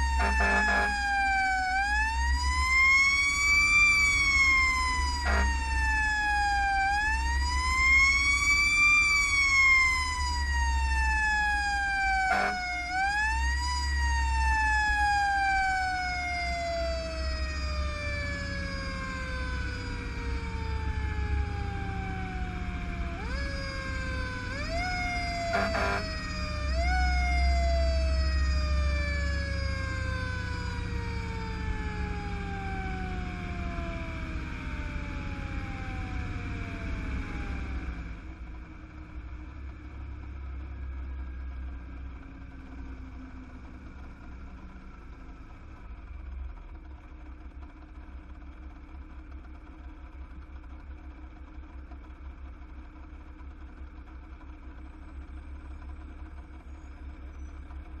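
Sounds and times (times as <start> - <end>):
fire engine siren wailing: 0.0 - 46.2
truck engine rumble: 0.0 - 58.0.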